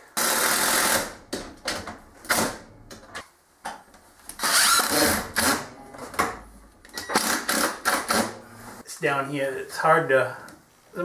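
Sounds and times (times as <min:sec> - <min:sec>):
cordless drill driving a screw: 0:04.4 - 0:05.5.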